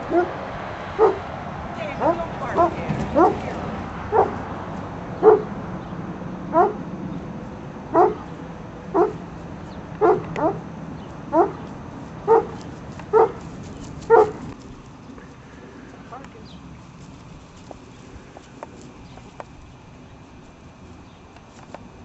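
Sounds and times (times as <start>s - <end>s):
dog barking: 0.0s - 0.4s, 1.0s - 1.3s, 2.0s - 3.5s, 4.1s - 4.4s, 5.2s - 5.6s, 6.5s - 6.8s, 7.9s - 8.3s, 8.9s - 9.2s, 10.0s - 10.6s, 11.3s - 11.6s, 12.3s - 13.4s, 14.1s - 14.5s.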